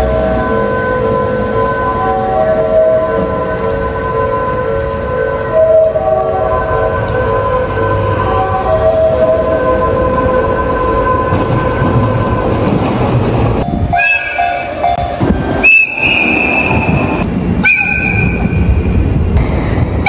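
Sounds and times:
low rumble of trains: 0:00.0 - 0:20.0
train horn blasts: 0:13.6 - 0:18.6.

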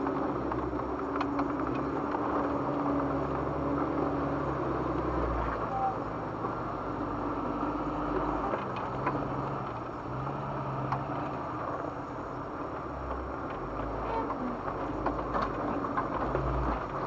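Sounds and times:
rocks clicking and knocking: 0:00.0 - 0:05.1, 0:10.8 - 0:17.0
engine running at crawling speed: 0:00.0 - 0:17.0.

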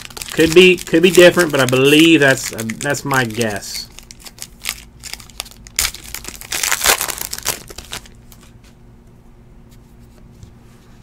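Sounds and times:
foil wrapper crinkling and tearing: 0:00.0 - 0:08.2.

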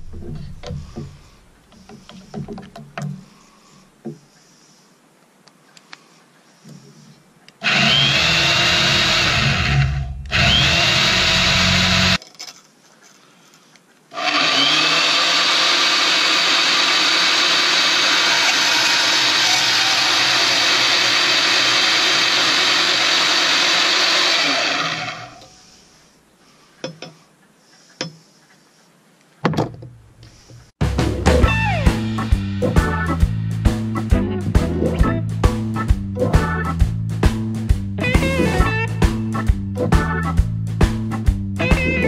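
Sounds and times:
bandsaw cutting pipe: 0:07.6 - 0:12.2, 0:14.1 - 0:25.6
bandsaw running: 0:07.6 - 0:12.2, 0:14.1 - 0:25.4.

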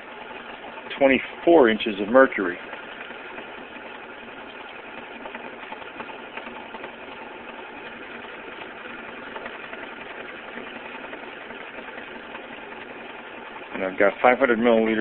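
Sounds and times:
vacuum pump running: 0:00.0 - 0:15.0.

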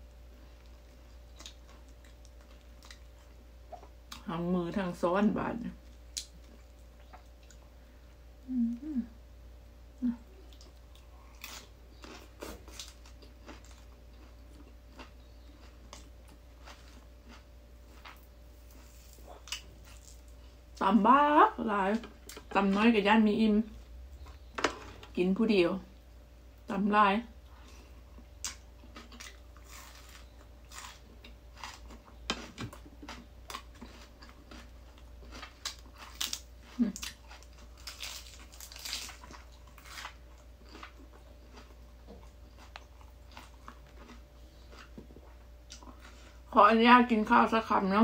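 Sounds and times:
low hum: 0:00.0 - 0:48.0
crisp chewing crunches: 0:00.4 - 0:04.2, 0:10.4 - 0:20.5, 0:27.7 - 0:46.5.

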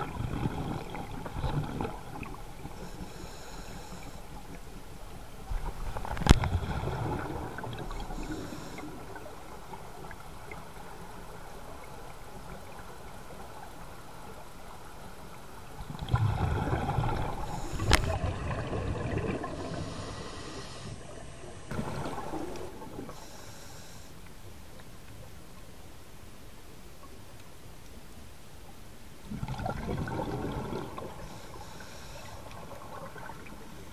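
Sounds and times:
underwater bubbles rushing: 0:00.0 - 0:02.9, 0:04.4 - 0:13.6, 0:15.7 - 0:23.2, 0:29.2 - 0:31.3.

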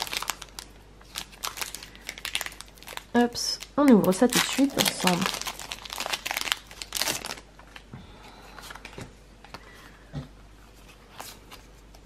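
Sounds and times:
foil wrapper crinkling: 0:00.0 - 0:07.9.

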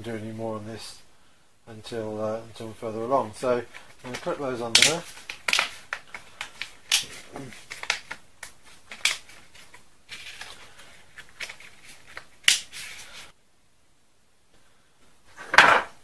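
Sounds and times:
plastic covers clicking and snapping: 0:04.1 - 0:09.4.

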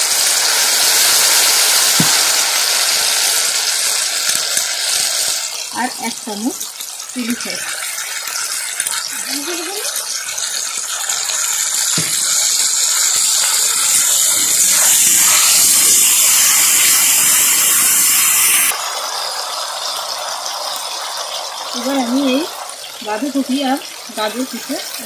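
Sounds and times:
vegetables sizzling in hot oil: 0:00.0 - 0:25.0
knock: 0:02.0 - 0:02.2, 0:12.0 - 0:12.2.

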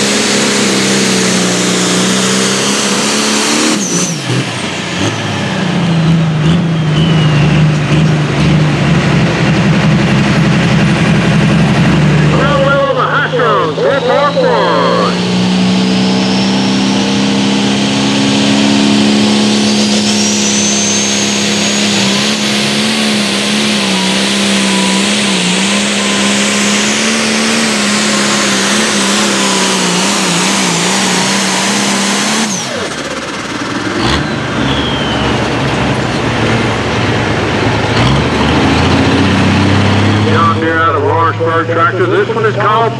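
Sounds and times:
diesel engine under load: 0:00.0 - 0:42.9
lower rough engine note: 0:00.0 - 0:42.9
high whine: 0:01.2 - 0:37.8.

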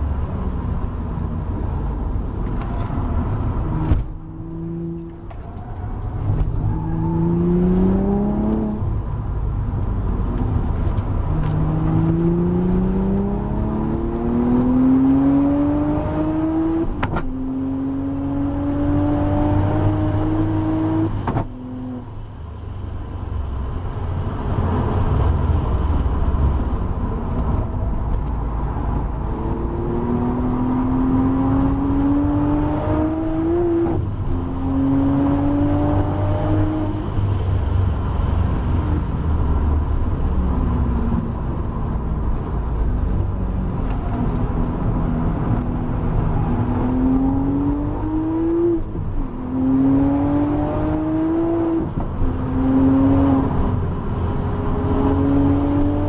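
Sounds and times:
road and wind noise: 0:00.0 - 0:56.0
car engine accelerating: 0:00.2 - 0:22.1, 0:24.5 - 0:56.0.

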